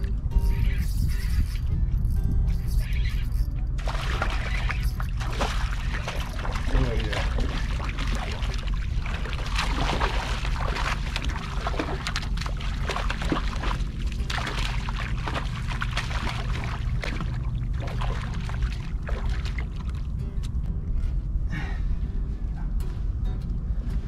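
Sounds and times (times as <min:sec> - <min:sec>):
wind rumble on microphone: 0:00.0 - 0:24.0
water splashing against rocks: 0:03.8 - 0:20.1.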